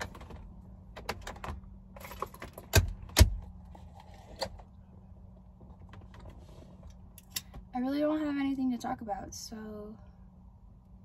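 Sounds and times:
low cabin hum: 0.0s - 11.0s.

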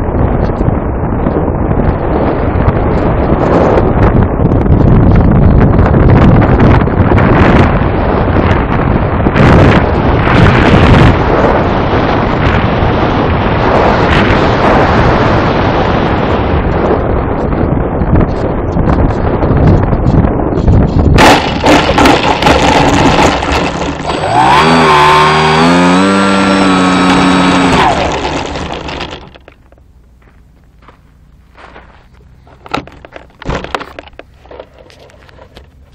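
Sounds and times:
wind buffeting microphone: 0.0s - 35.9s
motor and propeller spinning down: 21.2s - 29.8s
knocks and thumps: 32.5s - 34.7s.

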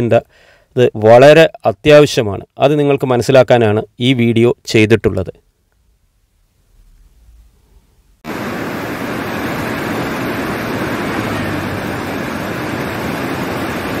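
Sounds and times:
river rapids rushing: 8.3s - 14.0s.

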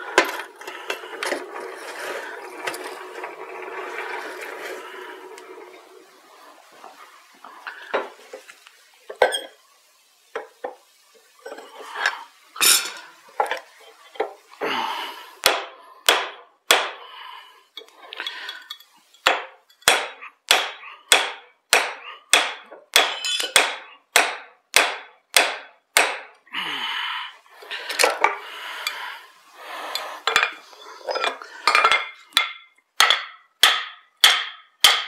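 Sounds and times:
knocks and clinks: 9.1s - 9.6s, 17.8s - 20.2s, 22.9s - 23.7s, 30.0s - 35.0s
hammer striking metal with ring: 32.4s - 35.0s.

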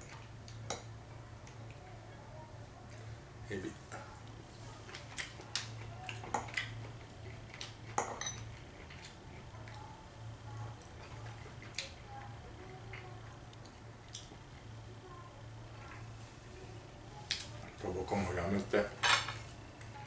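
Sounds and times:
low steady hum: 0.0s - 20.0s
cutlery clinking on bowl and plate: 7.9s - 9.0s, 19.0s - 19.4s.

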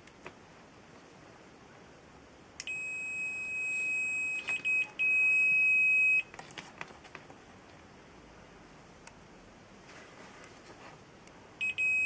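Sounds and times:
multimeter high-pitched beep: 2.6s - 6.3s, 11.6s - 12.0s.

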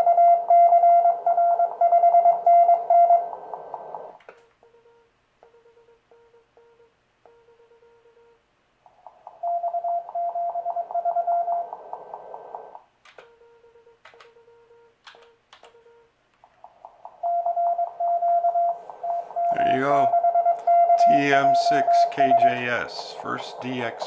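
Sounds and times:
high morse code tone: 0.0s - 3.4s, 9.4s - 11.7s, 13.2s - 16.1s, 17.2s - 24.0s
low morse code tone: 0.0s - 4.0s, 4.6s - 8.4s, 9.4s - 11.9s, 13.2s - 16.1s, 17.2s - 24.0s
sharp clicks: 13.0s - 13.3s, 14.0s - 14.4s, 15.0s - 17.3s.

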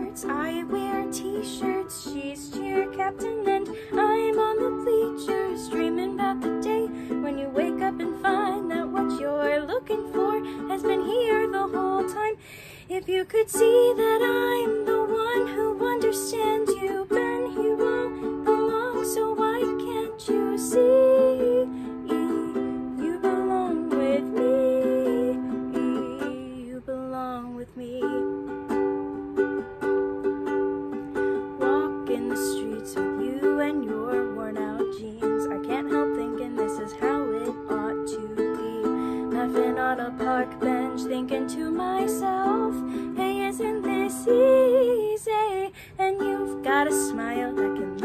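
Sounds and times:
ukulele strumming chords: 0.0s - 12.4s, 13.1s - 48.0s
woman singing: 0.0s - 29.4s, 30.8s - 48.0s.

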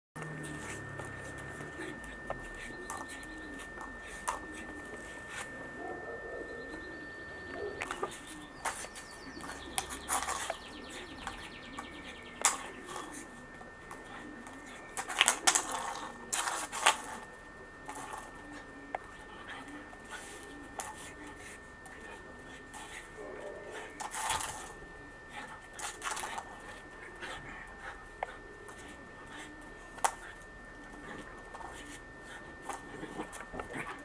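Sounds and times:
faint steady high tone: 0.2s - 34.0s
puppy claws tapping on stone tiles: 12.4s - 13.2s, 13.9s - 17.2s, 25.7s - 32.0s.

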